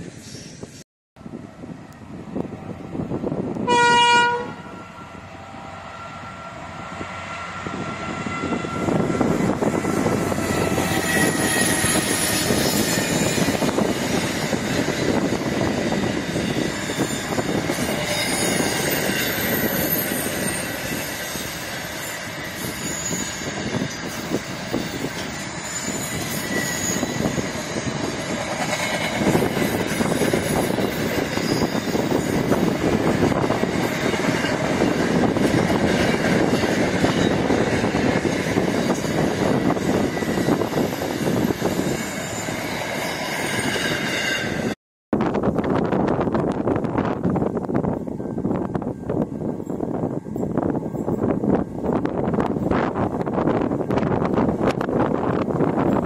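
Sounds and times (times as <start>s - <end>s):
freight train rumble and clatter: 0.0s - 56.0s
train horn blast: 3.6s - 12.0s
wheel squeals: 8.6s - 44.8s.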